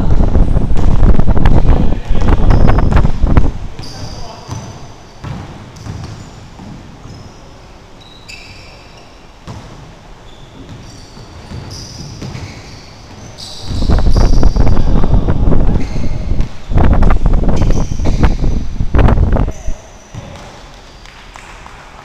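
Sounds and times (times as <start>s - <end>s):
wind buffeting microphone: 0.0s - 3.8s, 13.6s - 19.6s
sneakers squeaking: 0.0s - 21.8s
basketball bouncing on hardwood: 4.5s - 6.8s.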